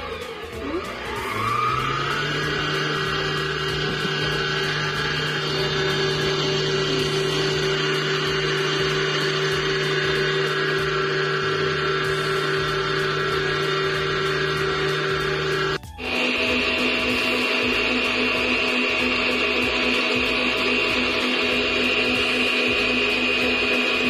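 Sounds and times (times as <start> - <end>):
stand mixer motor humming: 0.0 - 24.0.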